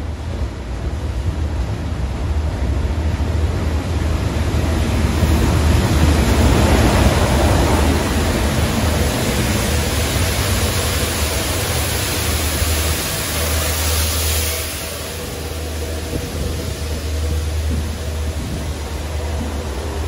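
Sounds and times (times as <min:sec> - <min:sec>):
diesel locomotive engine droning: 0:00.0 - 0:20.0
hiss of high-pressure water jets: 0:05.1 - 0:20.0.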